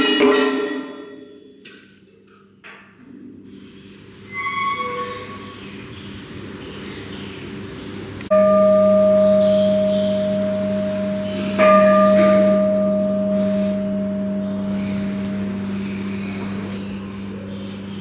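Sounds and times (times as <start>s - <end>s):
large bell ringing: 8.3s - 18.0s.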